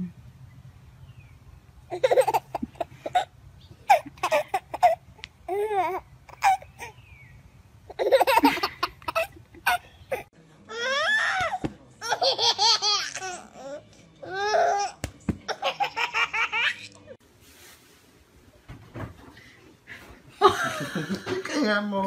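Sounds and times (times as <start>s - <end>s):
baby laughing: 1.9s - 7.0s, 7.9s - 10.3s, 12.0s - 13.8s, 14.4s - 17.0s.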